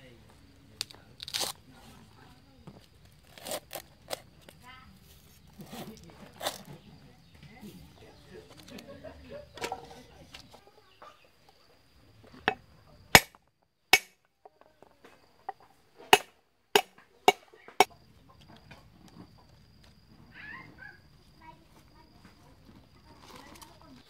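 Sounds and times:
cleaver chopping on wooden board: 13.2s - 13.4s, 16.2s - 17.4s.

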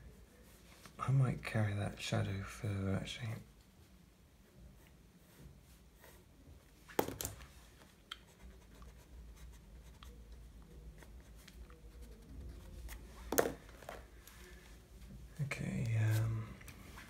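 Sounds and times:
pencil scratching on paper: 4.7s - 6.4s, 8.2s - 13.1s.

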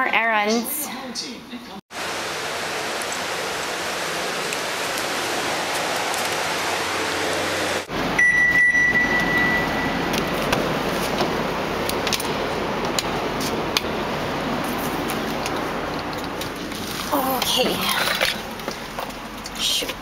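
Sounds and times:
high electronic beep: 8.2s - 10.1s.

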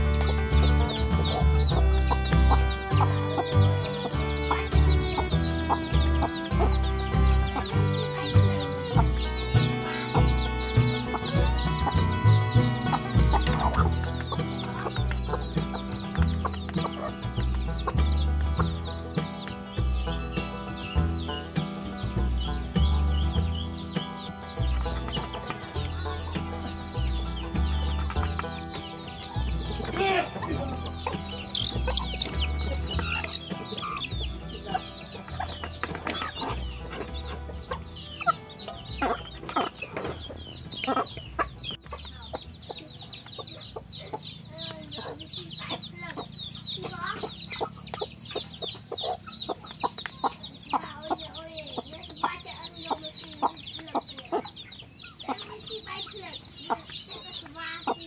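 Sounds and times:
background music with low bass: 0.0s - 44.6s
chicks peeping: 0.0s - 58.0s
hens clucking: 0.0s - 58.0s.

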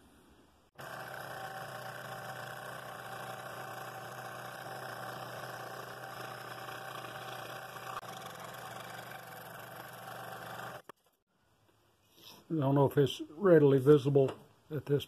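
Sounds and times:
scroll saw cutting wood: 0.8s - 11.0s.

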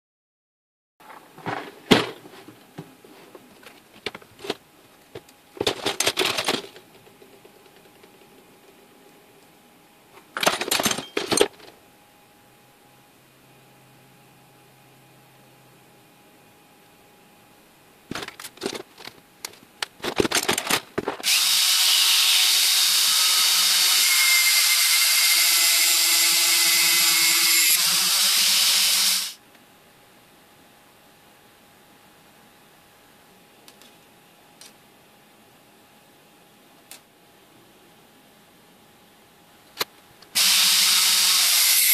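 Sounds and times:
rotary tool cutting at high speed: 21.2s - 29.4s, 40.4s - 41.9s.

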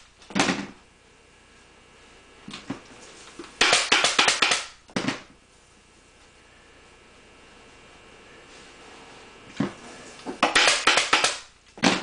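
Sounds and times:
pneumatic staple gun shots: 3.6s - 5.2s, 10.4s - 12.0s.

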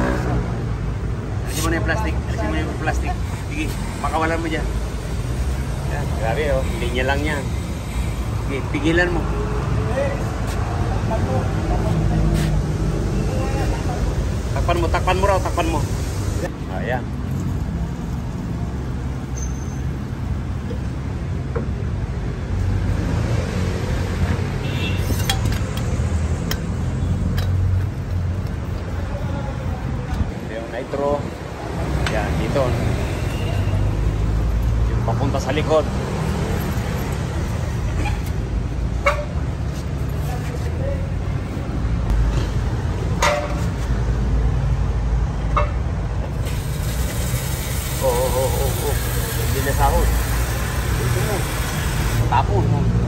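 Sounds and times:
hiss: 46.3s - 52.3s.

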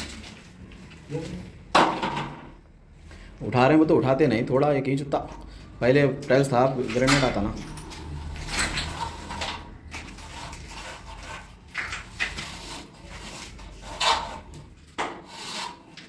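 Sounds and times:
straight edge scraping plaster wall: 7.0s - 16.0s.

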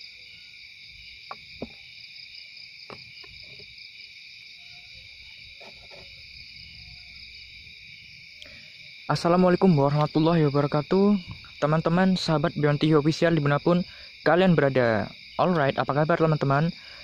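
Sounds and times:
crickets trilling: 0.0s - 17.0s.

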